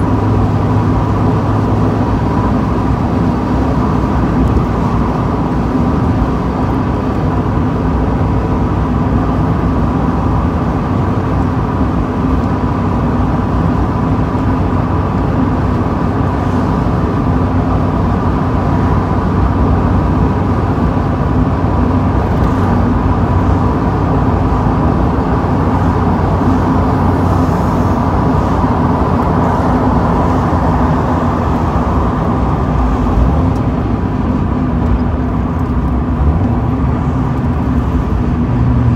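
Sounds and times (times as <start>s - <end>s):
car engine drone: 0.0s - 38.9s
wind and road noise: 0.0s - 38.9s.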